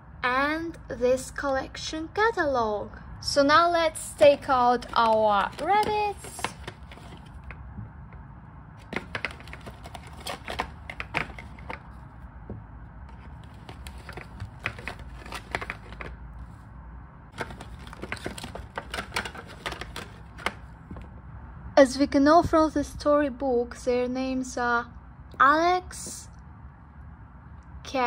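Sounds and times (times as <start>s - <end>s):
cardboard rustling: 4.2s - 7.6s, 8.8s - 12.2s, 13.1s - 16.6s, 17.3s - 21.1s.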